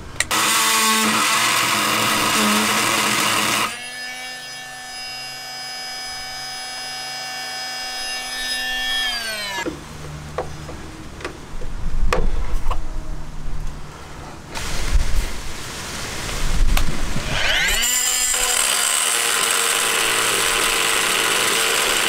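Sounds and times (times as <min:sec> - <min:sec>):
multi-tool grinding buzz: 0:00.0 - 0:09.7, 0:17.2 - 0:22.0
power tool whine: 0:00.2 - 0:09.7, 0:17.2 - 0:22.0.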